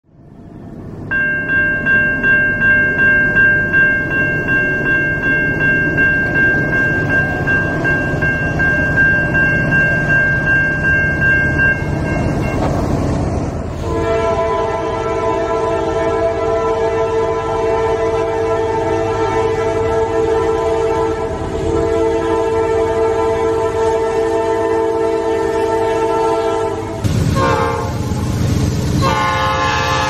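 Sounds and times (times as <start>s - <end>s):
crossing bell ringing: 1.0s - 13.2s
train horn: 13.8s - 28.3s, 29.0s - 30.0s.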